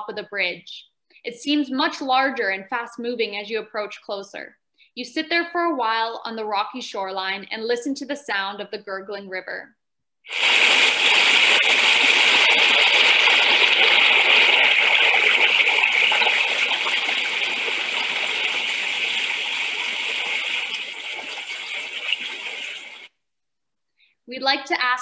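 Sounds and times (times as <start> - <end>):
person narrating: 0.0 - 9.7, 24.3 - 25.0.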